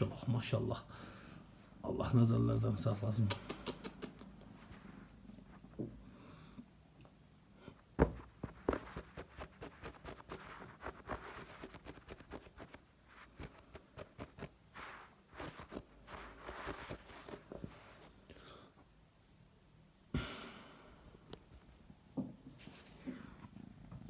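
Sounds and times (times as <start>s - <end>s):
rustling near microphone: 8.0s - 18.2s.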